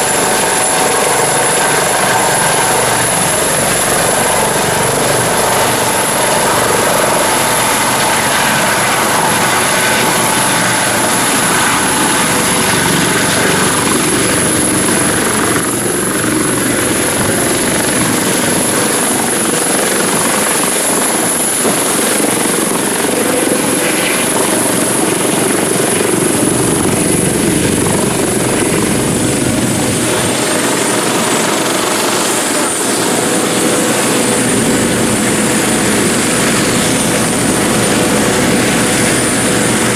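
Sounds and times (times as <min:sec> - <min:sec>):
helicopter rotor and turbine noise: 0:00.0 - 0:39.9
high turbine whine: 0:00.0 - 0:39.9.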